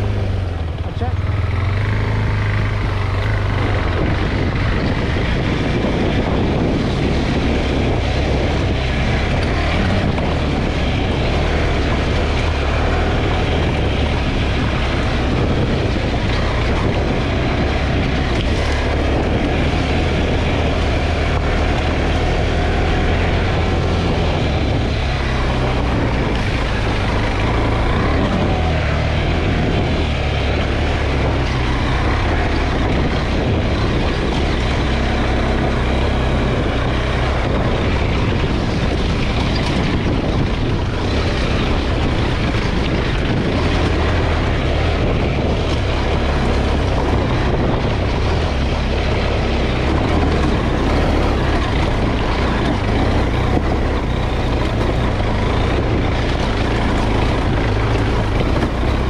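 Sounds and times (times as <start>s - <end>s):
motorcycle engine running: 0.0s - 59.0s
tyres rolling over loose stones: 30.3s - 59.0s.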